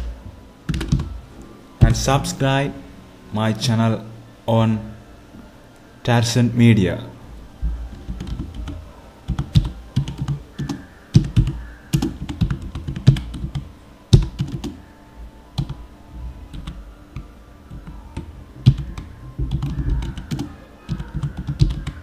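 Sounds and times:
keyboard typing: 0.7s - 1.2s, 7.9s - 14.8s, 15.6s - 15.8s, 16.5s - 22.0s.

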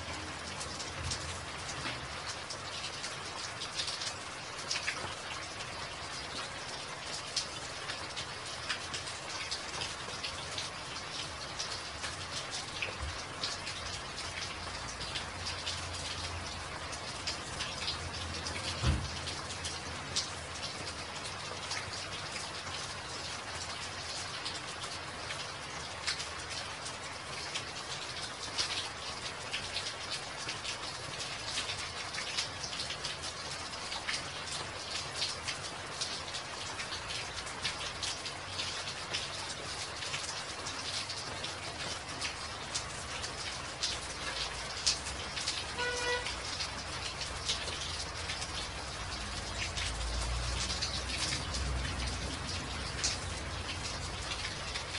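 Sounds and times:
rain splashing into puddles: 0.0s - 54.9s
dull low thump: 18.8s - 19.2s.

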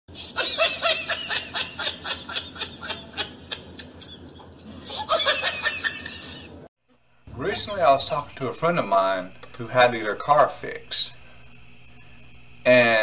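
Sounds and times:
sped-up cartoon laughter: 0.1s - 6.7s.

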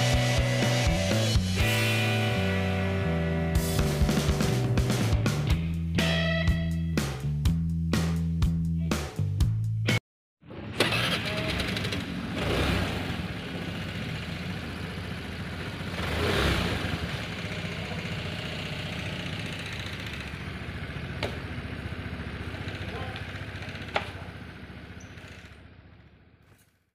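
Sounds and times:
scooter engine idling: 10.8s - 26.8s.

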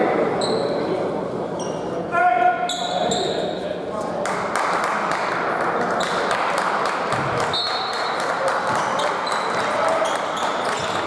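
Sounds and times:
crowd murmur: 0.0s - 11.0s
ball bouncing on court: 7.1s - 8.0s, 8.6s - 11.0s.

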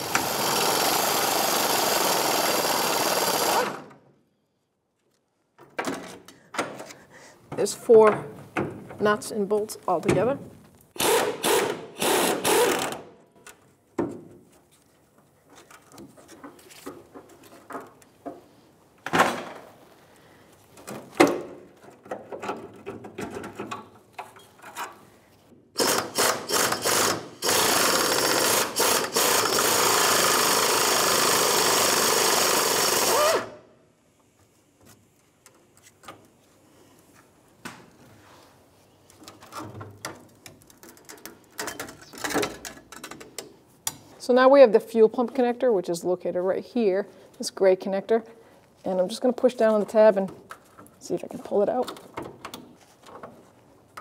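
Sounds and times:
pneumatic impact wrench hammering: 0.0s - 3.9s, 11.0s - 13.1s, 25.8s - 33.6s.

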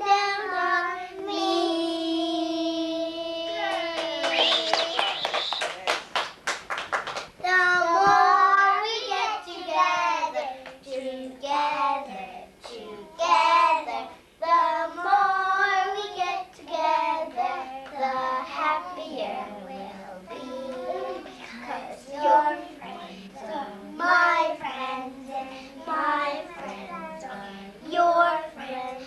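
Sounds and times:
children singing: 7.4s - 29.0s.

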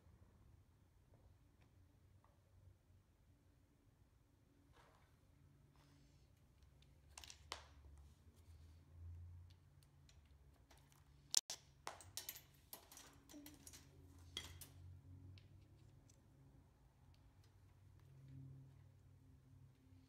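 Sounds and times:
faint low hum: 0.0s - 20.0s
metal parts clicking and tapping: 9.5s - 15.8s.

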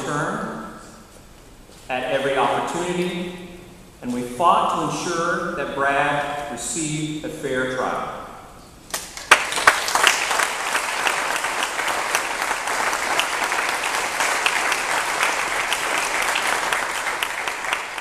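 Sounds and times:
audience applauding: 8.9s - 18.0s.

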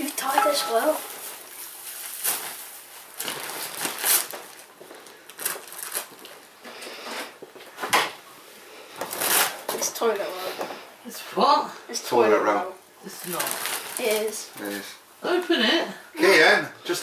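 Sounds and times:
wrapping paper tearing and crumpling: 0.2s - 6.6s, 9.0s - 9.8s, 13.1s - 14.9s.

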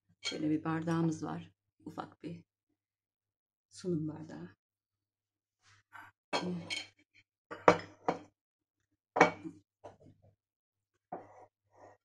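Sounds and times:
glassware clinking on marble: 7.5s - 8.2s.

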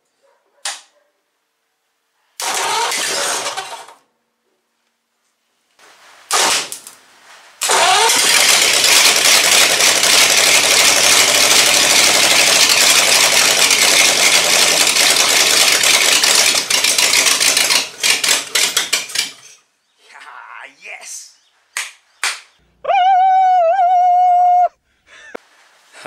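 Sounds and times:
car engine starting and revving: 7.6s - 16.7s.

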